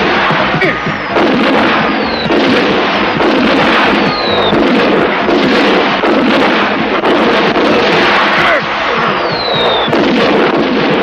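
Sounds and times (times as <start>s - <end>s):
explosions and crackling bangs: 0.0s - 11.0s
high falling whistle: 0.8s - 1.2s, 1.8s - 2.3s, 4.0s - 4.6s, 9.0s - 9.9s.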